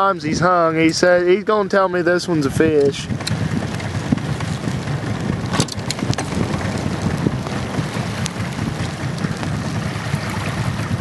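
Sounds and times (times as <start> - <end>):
outboard motor idling: 0.0 - 11.0
wind: 0.0 - 11.0
rain: 3.0 - 11.0.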